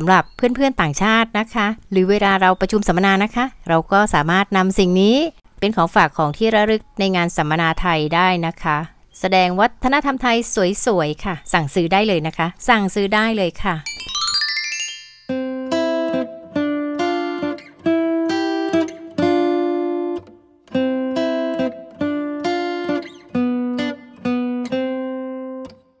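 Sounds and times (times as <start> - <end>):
plucked string instrument melody: 13.9 - 25.8.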